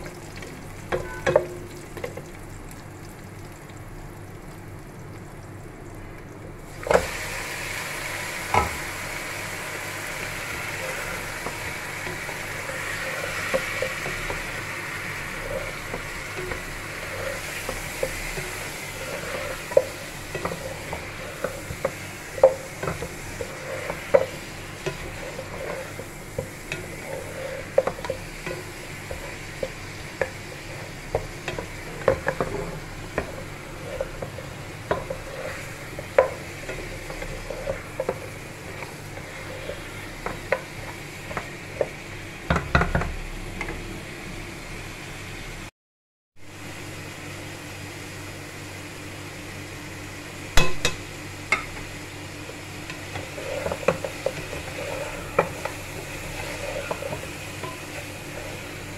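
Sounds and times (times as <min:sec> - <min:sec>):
meat sizzling in a pan: 0:00.0 - 0:45.6, 0:46.4 - 0:58.9
wooden spatula scraping a pan: 0:08.4 - 0:42.1, 0:52.4 - 0:58.9.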